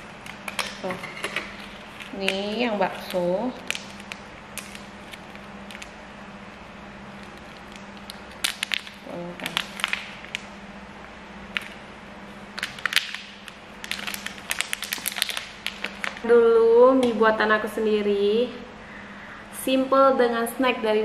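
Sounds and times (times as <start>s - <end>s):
steady low hum: 0.0s - 21.0s
plastic snack packet crinkling: 1.5s - 6.0s, 7.1s - 10.5s, 11.5s - 11.8s, 12.5s - 16.2s.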